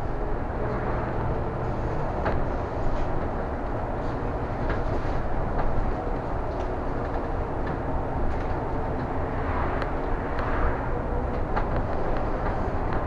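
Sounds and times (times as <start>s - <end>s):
bus engine and road rumble: 0.0s - 13.0s
body rattles and clicks: 2.2s - 9.1s, 11.3s - 13.0s.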